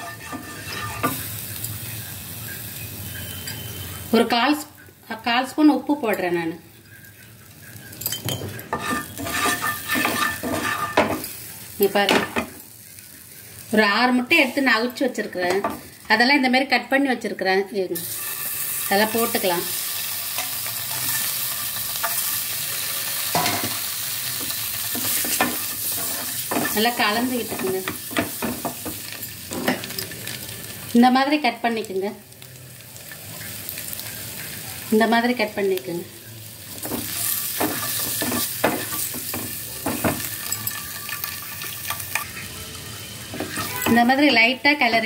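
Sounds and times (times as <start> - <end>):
wooden spatula scraping pan: 0.0 - 1.2, 8.8 - 11.2
oil sizzling in frying pan: 0.0 - 45.0.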